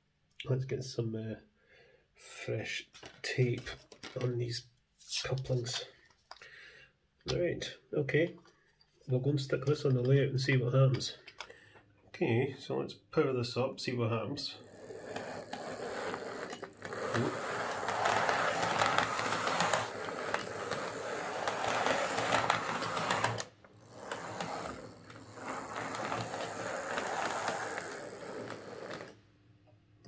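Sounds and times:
model train motor whirring: 0:14.6 - 0:29.2
wheels clicking over rails: 0:14.6 - 0:29.2.

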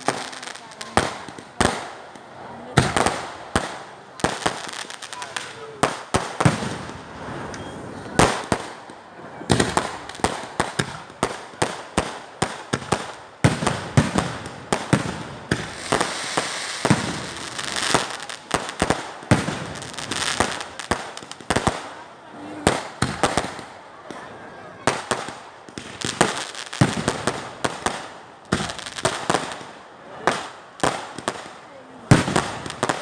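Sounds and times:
fireworks hissing: 0:00.0 - 0:08.7, 0:14.0 - 0:21.5
fireworks banging: 0:00.0 - 0:33.0.

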